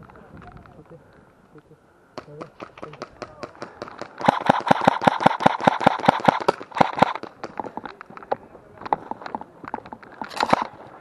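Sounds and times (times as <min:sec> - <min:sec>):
airsoft pistol shots: 0:04.2 - 0:07.2.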